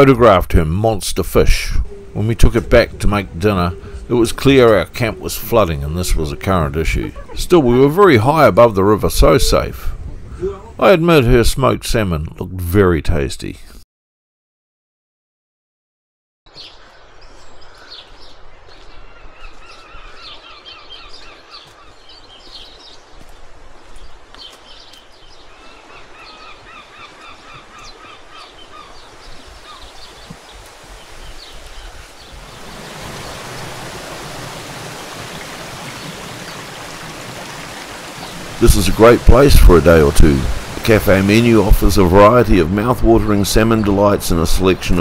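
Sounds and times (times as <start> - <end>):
water rushing: 0.0 - 9.9, 25.4 - 45.0
birds calling: 0.0 - 10.8, 16.5 - 45.0
background hiss: 22.0 - 45.0.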